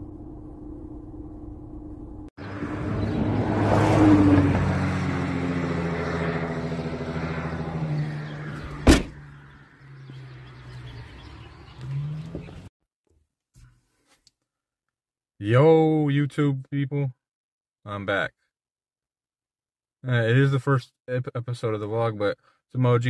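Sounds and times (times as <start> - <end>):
car passing by: 2.4 - 12.7
car trunk slamming shut: 8.6 - 9.3.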